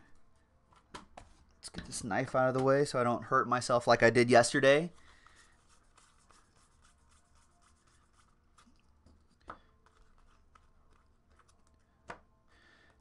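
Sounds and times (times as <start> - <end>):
paper cards rubbing and ticking: 4.8 - 11.8.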